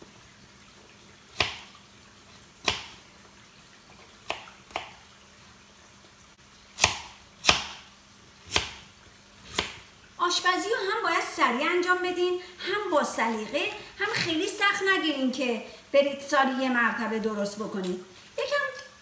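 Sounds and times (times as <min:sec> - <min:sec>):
knife chopping on cutting board: 0:06.8 - 0:07.8, 0:08.5 - 0:08.8, 0:09.5 - 0:09.8.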